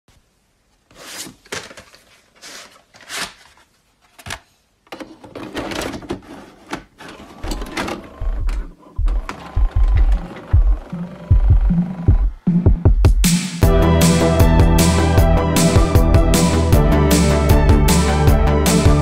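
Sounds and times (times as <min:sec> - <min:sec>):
mechanical clatters and rustles: 0:04.9 - 0:11.0
deep thumps: 0:08.2 - 0:13.4.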